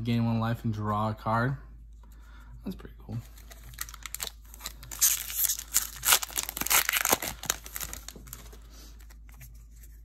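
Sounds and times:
foil wrapper crinkling and tearing: 3.2 - 9.2.

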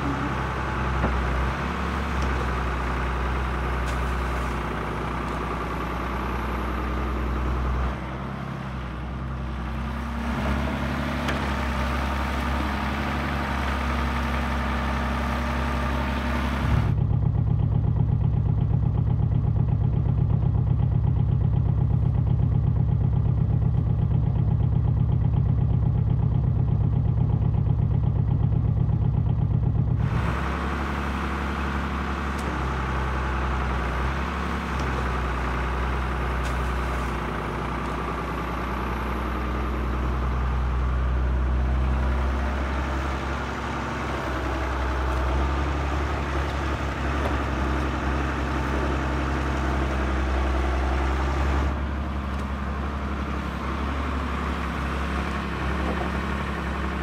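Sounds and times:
boat engine drone: 0.0 - 17.0, 30.0 - 57.0
diesel engine running: 0.0 - 57.0.

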